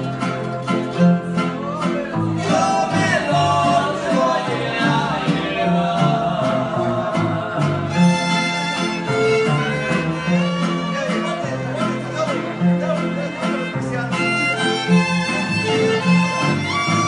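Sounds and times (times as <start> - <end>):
voices singing: 0.0 - 12.1
harp bass line: 0.0 - 17.0
strummed guitars: 0.0 - 17.0
bowed violins: 5.3 - 17.0.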